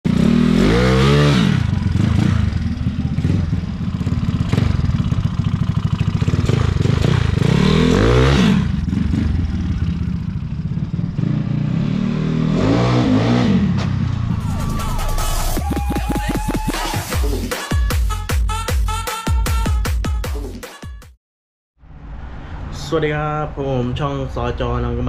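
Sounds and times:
scooter engine revving: 0.1s - 17.1s.

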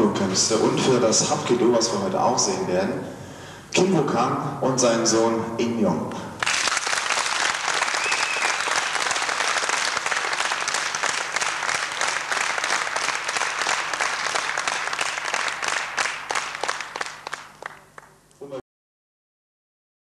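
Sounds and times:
audience applauding: 6.4s - 18.2s.

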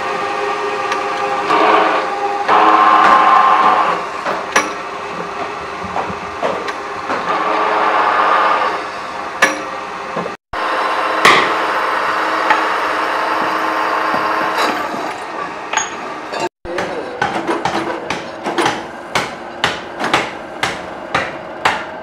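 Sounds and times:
drill press drilling metal: 0.1s - 5.6s, 6.6s - 16.4s
sharp metallic knocks: 4.2s - 4.9s, 9.4s - 9.8s, 11.2s - 11.8s, 16.7s - 22.0s.

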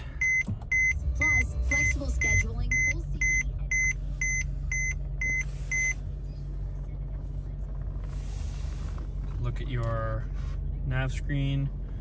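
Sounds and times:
car warning chime beeping: 0.0s - 6.1s
idling car engine hum: 0.0s - 12.0s.

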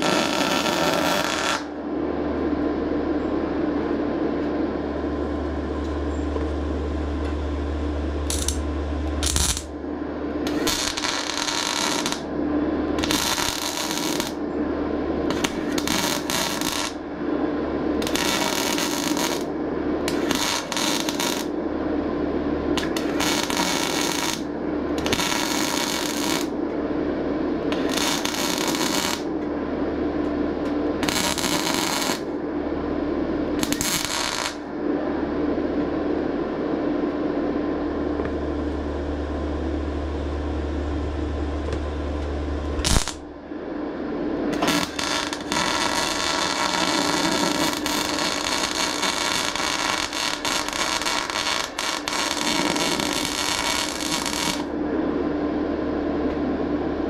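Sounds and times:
welder arc crackling: 0.0s - 1.8s, 5.0s - 9.8s, 10.4s - 12.3s, 13.0s - 14.4s, 15.3s - 17.0s, 18.0s - 21.5s, 22.8s - 26.6s, 27.7s - 29.4s, 30.6s - 32.3s, 33.6s - 34.7s, 38.2s - 43.4s, 44.4s - 54.7s
steady hum: 0.0s - 57.0s.

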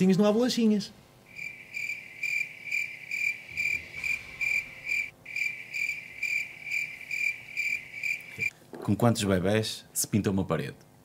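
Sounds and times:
cricket chirping: 1.3s - 8.5s.

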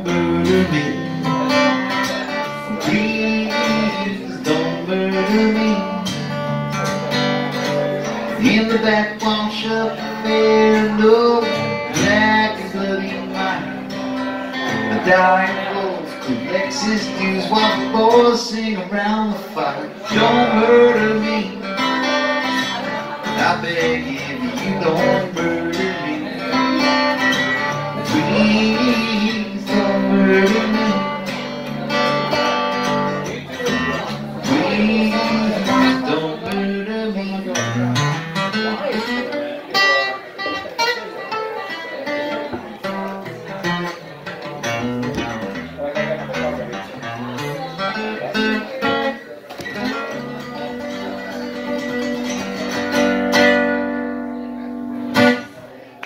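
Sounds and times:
man singing: 0.0s - 39.3s
acoustic guitar strumming: 0.0s - 56.0s.

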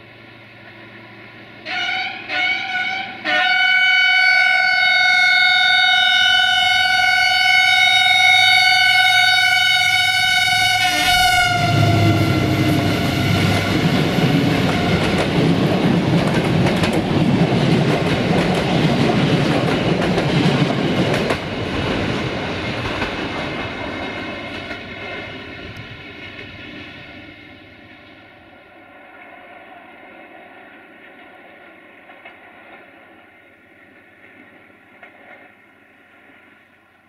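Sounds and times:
locomotive horn blowing: 1.6s - 15.3s
train rushing past: 5.4s - 37.0s
wheels clicking over rail joints: 13.9s - 26.8s.

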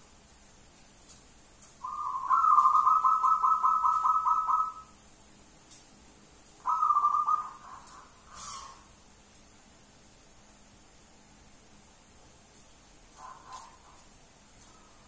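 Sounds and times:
dove cooing: 1.8s - 4.9s, 6.6s - 8.8s.

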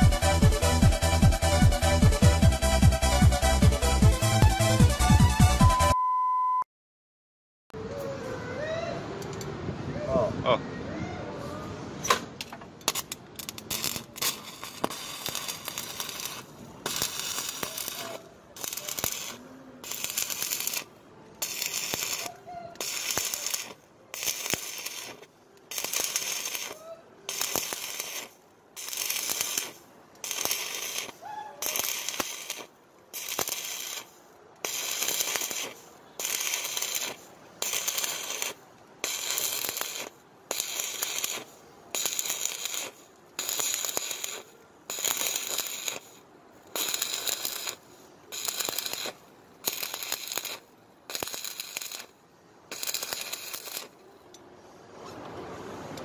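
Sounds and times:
welding arc sizzling and crackling: 12.4s - 54.4s.

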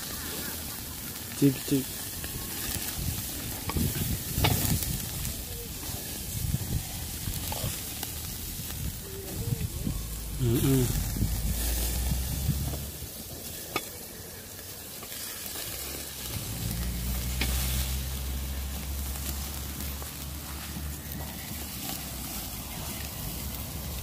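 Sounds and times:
meat sizzling on grill: 0.0s - 24.0s
low rumble: 2.2s - 13.5s, 15.8s - 24.0s.

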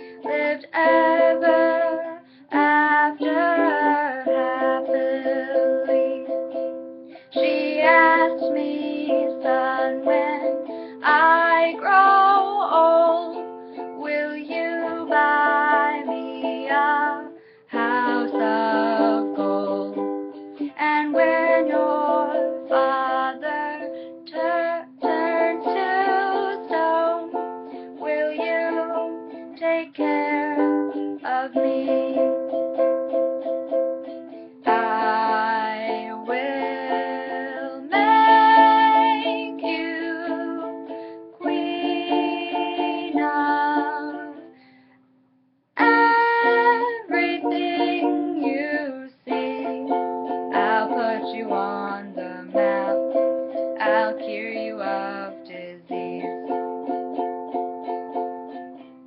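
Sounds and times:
woman singing: 0.0s - 6.6s, 7.2s - 32.7s, 34.5s - 44.6s, 45.8s - 58.7s
ukulele strumming: 0.0s - 44.9s, 45.8s - 59.0s.

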